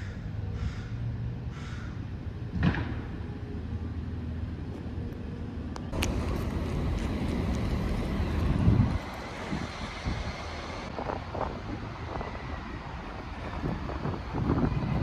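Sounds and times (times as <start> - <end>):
low traffic hum: 0.0 - 15.0
steady rush of noise: 4.4 - 15.0.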